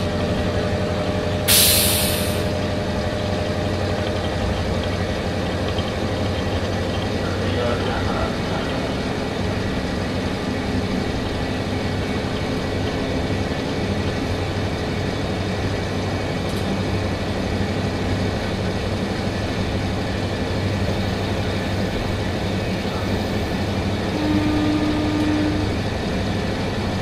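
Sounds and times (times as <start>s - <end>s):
diesel engine drone: 0.0s - 27.0s
train running noise: 0.0s - 27.0s.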